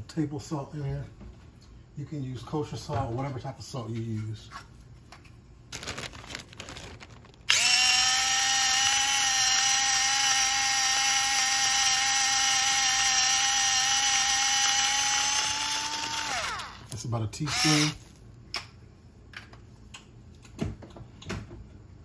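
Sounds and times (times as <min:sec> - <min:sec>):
electric grinder motor whine: 0:07.5 - 0:16.9, 0:17.5 - 0:18.0.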